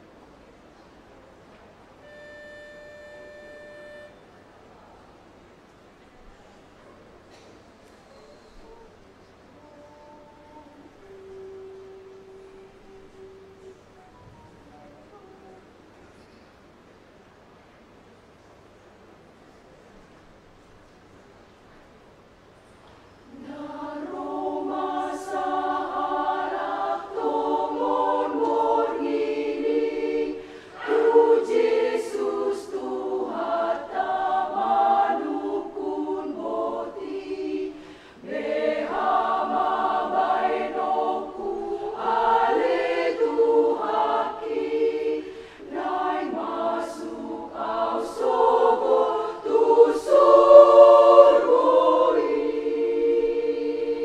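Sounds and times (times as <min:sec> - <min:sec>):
women's choir singing: 0:23.3 - 0:54.0.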